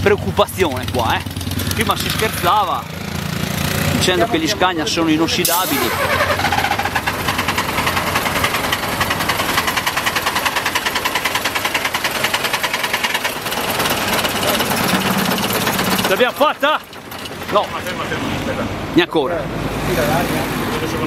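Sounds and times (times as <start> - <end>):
diesel engine cranking on starter: 5.4 - 18.0.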